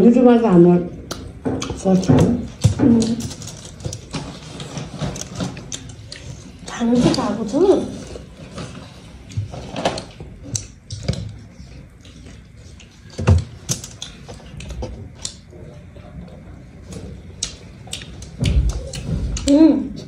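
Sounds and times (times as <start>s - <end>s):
chewing and mouth smacks: 5.2s - 6.8s, 10.0s - 19.5s.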